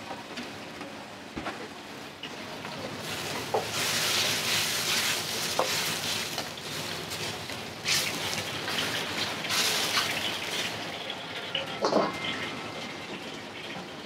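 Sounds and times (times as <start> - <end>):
food sizzling in hot oil: 2.7 - 14.0.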